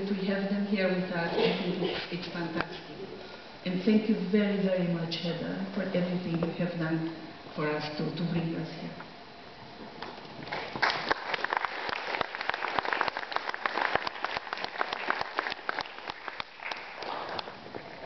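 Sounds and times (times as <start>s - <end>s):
audience applauding: 10.4s - 17.6s.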